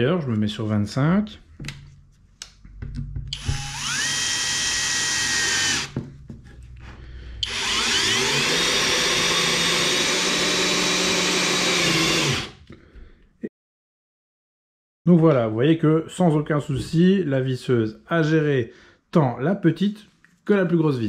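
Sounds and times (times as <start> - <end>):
cordless drill motor whine: 3.3 - 6.0, 7.4 - 12.6.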